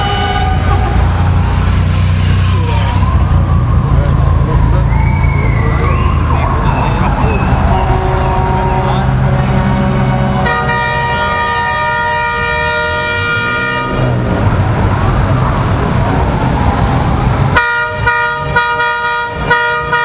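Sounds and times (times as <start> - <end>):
vehicle horn blasts: 0.0 - 1.0, 7.6 - 14.1, 17.6 - 20.0
passing car engines rumbling: 0.0 - 20.0.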